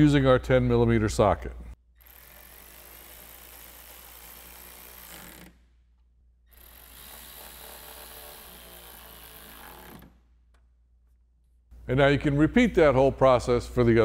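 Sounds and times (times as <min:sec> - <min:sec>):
electric ratchet motor whir: 0:02.0 - 0:05.6, 0:06.5 - 0:10.2.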